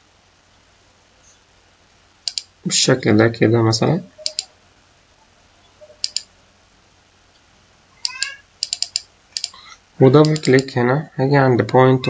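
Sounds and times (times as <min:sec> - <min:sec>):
computer mouse clicking: 0:02.2 - 0:02.5, 0:04.2 - 0:04.5, 0:06.0 - 0:06.3, 0:08.0 - 0:09.6, 0:10.2 - 0:10.7.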